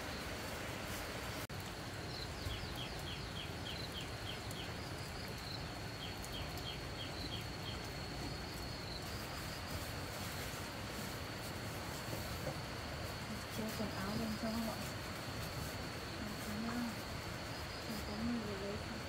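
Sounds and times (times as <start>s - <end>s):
insects droning: 0.0s - 19.0s.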